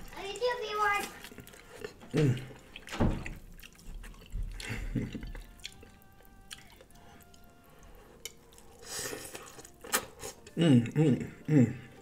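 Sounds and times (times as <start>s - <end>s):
sauce dripping: 1.2s - 10.5s.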